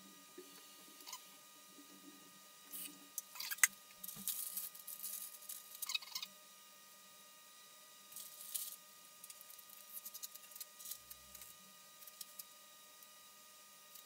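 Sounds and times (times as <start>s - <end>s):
paper wrapper crinkling: 4.0s - 6.0s.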